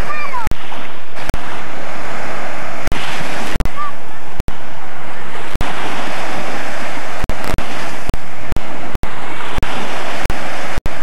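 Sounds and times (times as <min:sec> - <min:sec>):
small waves washing on sand: 0:00.0 - 0:11.0.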